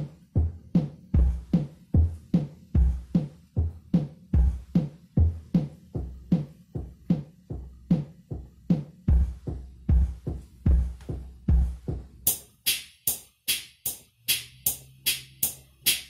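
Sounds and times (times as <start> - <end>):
bass drum thuds: 0.0 - 12.3
keyboard drum tick-tock pattern: 0.0 - 16.0.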